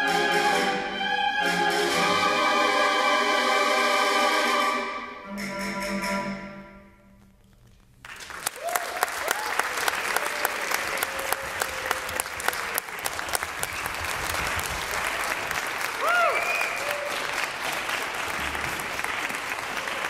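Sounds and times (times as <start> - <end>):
audience applauding: 8.0 - 20.0
person whooping: 8.6 - 9.7, 16.0 - 17.2.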